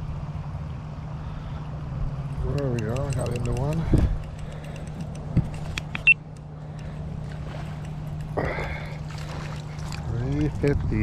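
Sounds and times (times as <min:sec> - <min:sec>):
reel clicks: 0:02.4 - 0:08.4
fishing reel cranking: 0:02.5 - 0:06.1
fish splashing: 0:04.4 - 0:10.2.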